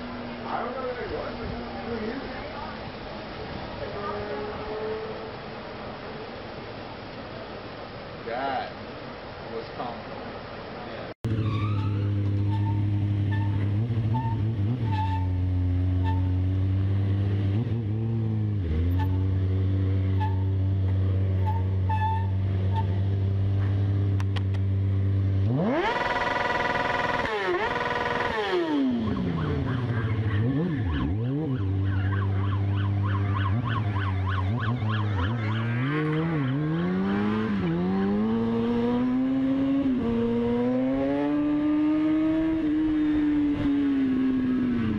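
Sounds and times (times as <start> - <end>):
motorcycle engine revving: 11.2 - 44.9.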